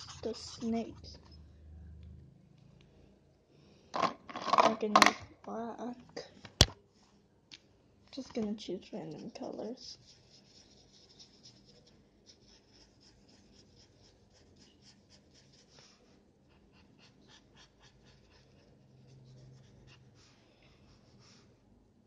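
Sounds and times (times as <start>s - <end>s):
pen scribbling on paper: 0.0s - 1.2s, 9.9s - 15.8s, 17.0s - 20.1s.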